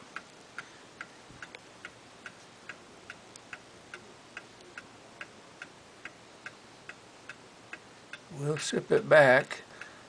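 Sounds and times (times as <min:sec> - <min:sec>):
pendulum clock ticking: 0:00.0 - 0:10.0.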